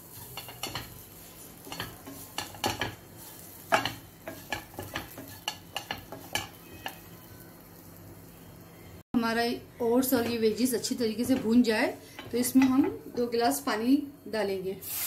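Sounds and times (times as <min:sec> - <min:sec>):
wooden spatula scraping frying pan: 0:00.0 - 0:07.1.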